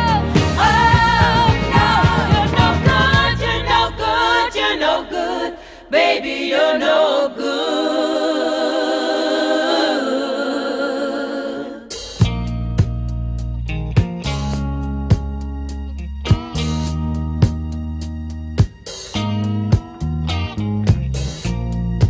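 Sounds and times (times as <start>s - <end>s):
song with bass and beat: 0.0s - 4.4s, 11.9s - 22.0s
voices singing unaccompanied: 0.0s - 12.1s.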